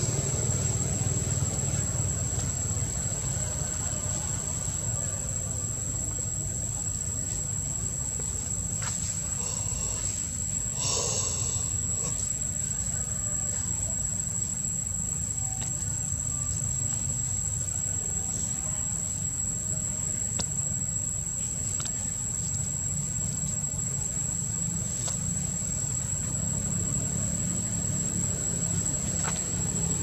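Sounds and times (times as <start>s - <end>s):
high-pitched insect drone: 8.8s - 30.0s.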